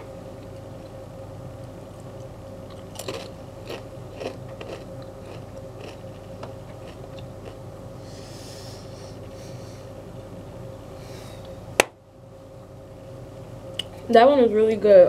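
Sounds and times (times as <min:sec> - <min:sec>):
chips crunching while chewed: 0:02.7 - 0:07.6.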